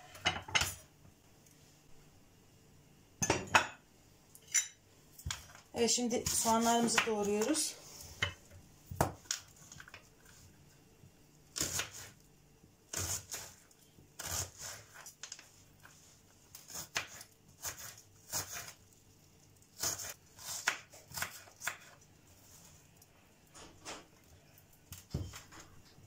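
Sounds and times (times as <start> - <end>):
knife chopping on wooden board: 19.8 - 22.0.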